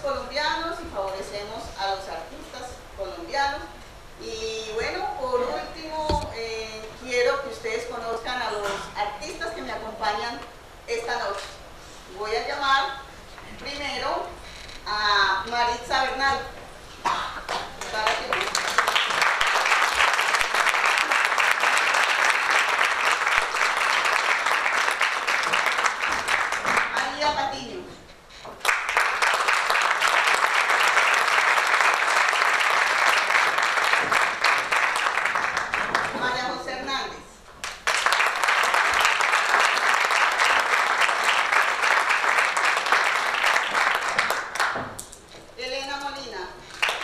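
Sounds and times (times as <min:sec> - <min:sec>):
audience applauding: 0:17.4 - 0:27.0, 0:28.6 - 0:36.4, 0:37.6 - 0:45.1, 0:46.7 - 0:47.0.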